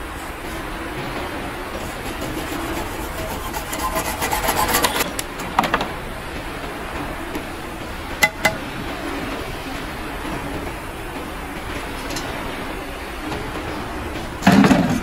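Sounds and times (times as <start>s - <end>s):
knife scraping plastic tube: 1.8s - 5.4s.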